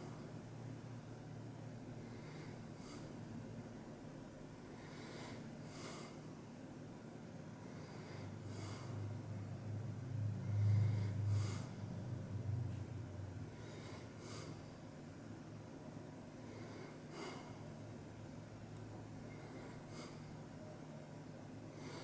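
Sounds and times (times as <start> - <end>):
low hum: 7.5 - 21.9.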